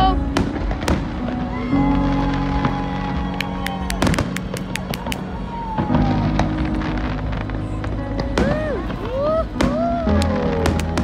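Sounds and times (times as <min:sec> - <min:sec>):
fireworks cracking and banging: 0:00.0 - 0:11.0
scattered firework pops: 0:02.6 - 0:05.4, 0:08.2 - 0:11.0.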